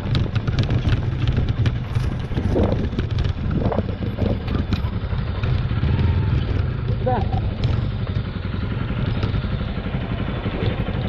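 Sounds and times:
wind noise: 0.0s - 8.2s
clicks and rattles from motorcycle: 0.0s - 11.0s
motorcycle engine running: 0.0s - 11.0s.

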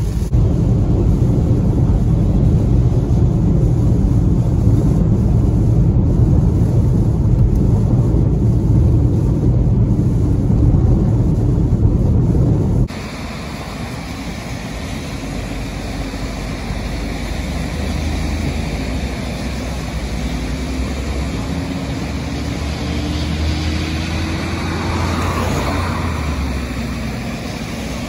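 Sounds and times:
low engine drone: 0.0s - 28.0s
tyres hissing on wet road: 0.0s - 28.0s
vehicle passing by: 15.9s - 28.0s.

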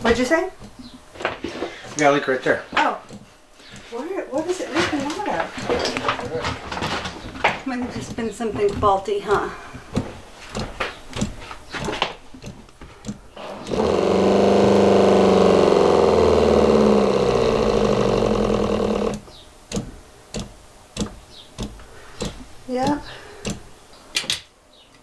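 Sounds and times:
water pump humming: 7.7s - 23.6s.

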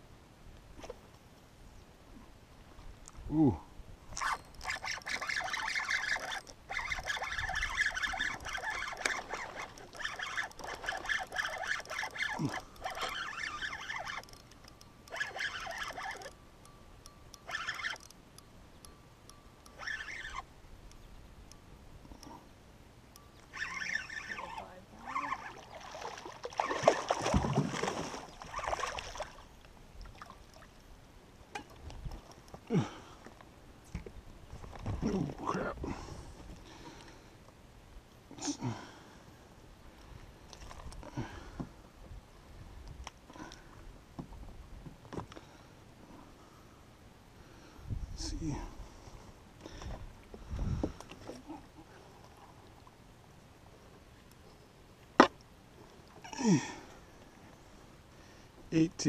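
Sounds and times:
fishing reel clicking: 4.2s - 18.2s, 18.8s - 21.0s, 23.2s - 25.6s
fish thrashing and splashing: 25.1s - 29.5s.

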